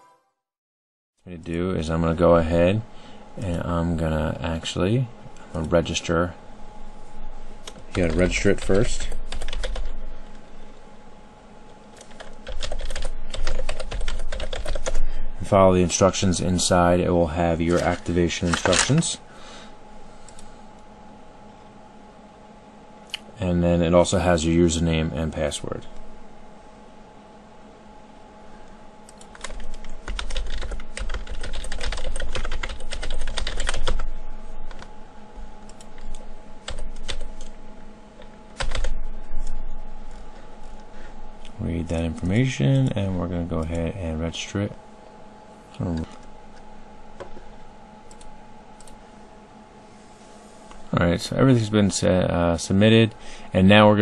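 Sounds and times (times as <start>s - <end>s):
steady hum: 1.2s - 54.0s
typing on computer keyboard: 9.0s - 9.9s, 12.0s - 15.0s, 29.1s - 34.0s, 38.6s - 38.9s.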